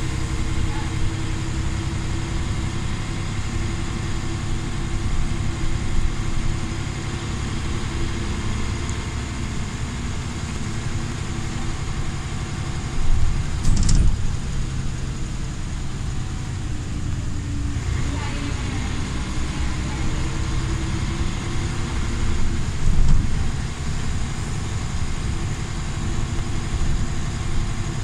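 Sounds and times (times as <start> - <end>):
bus diesel engine: 0.0 - 28.0
road noise: 0.0 - 28.0
loud thump and rattle: 13.4 - 14.5.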